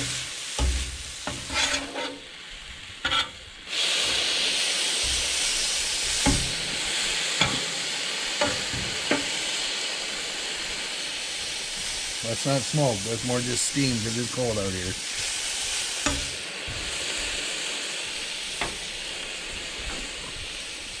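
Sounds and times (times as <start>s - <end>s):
meat sizzling on a griddle: 0.0s - 21.0s
metal spatula scraping steel: 0.6s - 2.3s, 3.0s - 3.4s.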